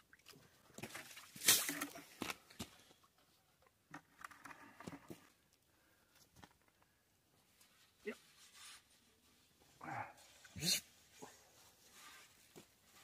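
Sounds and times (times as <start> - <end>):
water scooped and splashing: 0.0 - 2.2.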